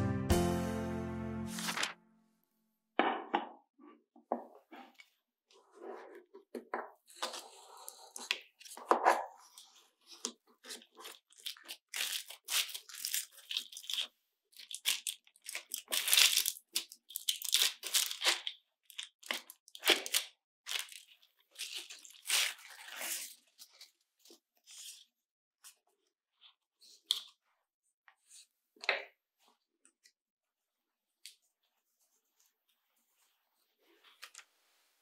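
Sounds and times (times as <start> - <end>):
baking paper crinkling: 1.5 - 2.0, 10.6 - 24.0.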